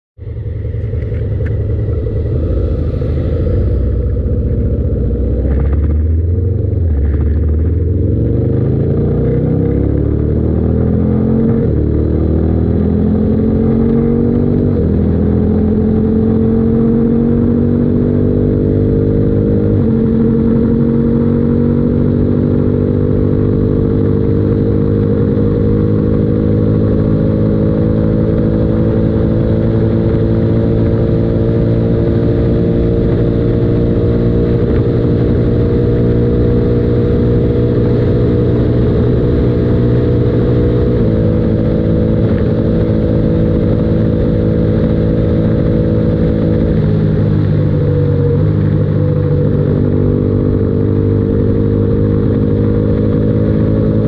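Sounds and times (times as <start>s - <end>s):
motorcycle engine accelerating: 0.2s - 54.0s.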